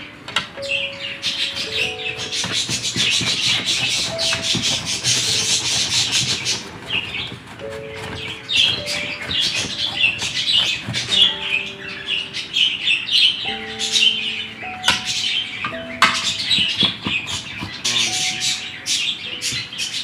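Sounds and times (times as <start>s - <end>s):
potato grated on metal grater: 2.1s - 11.3s.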